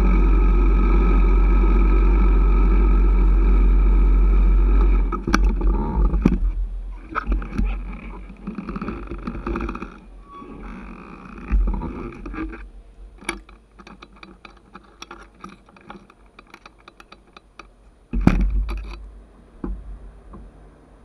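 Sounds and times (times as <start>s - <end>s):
heavy thump: 18.1s - 18.8s.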